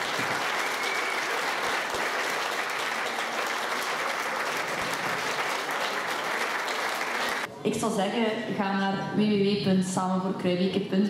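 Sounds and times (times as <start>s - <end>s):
audience applauding: 0.0s - 7.5s.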